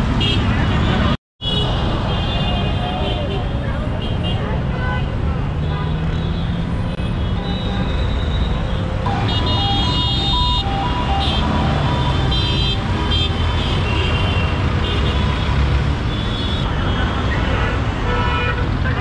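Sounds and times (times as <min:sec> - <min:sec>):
traffic engines running: 0:00.0 - 0:19.0
vehicle horns honking: 0:04.0 - 0:19.0.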